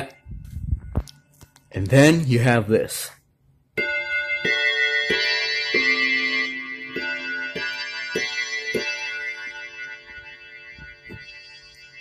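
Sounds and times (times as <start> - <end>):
synthesizer clock chime notes: 0.0 - 0.6, 3.8 - 12.0.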